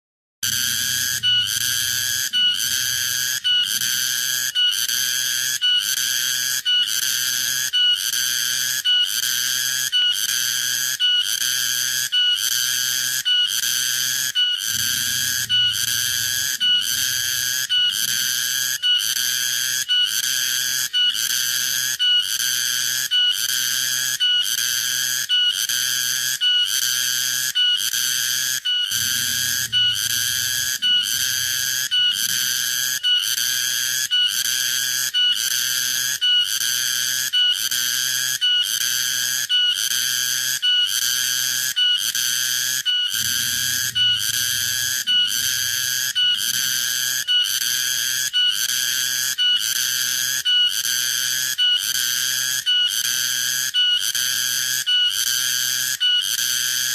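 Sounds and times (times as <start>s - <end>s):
cicada buzzing: 14.6s - 19.2s, 28.9s - 33.5s, 43.1s - 46.7s.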